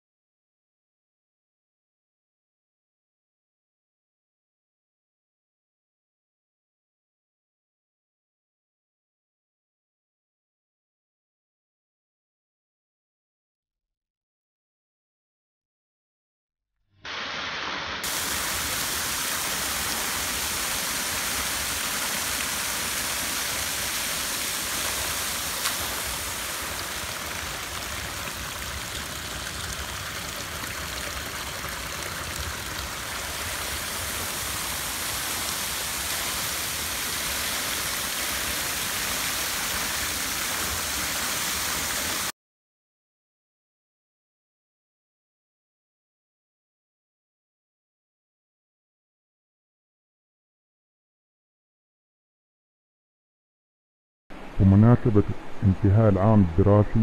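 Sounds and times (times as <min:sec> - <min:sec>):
small waterfall pouring: 0:17.1 - 0:42.3
stream over pebbles: 0:17.1 - 0:42.3.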